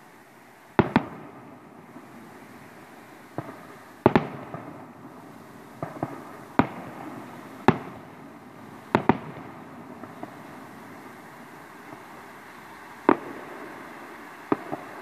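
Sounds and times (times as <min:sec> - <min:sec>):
firework shells bursting: 0:03.3 - 0:15.0.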